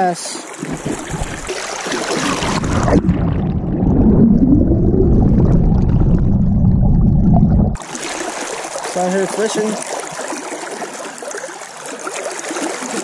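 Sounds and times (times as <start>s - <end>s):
water splashing: 0.0s - 13.0s
underwater rumble of moving water: 0.5s - 9.4s.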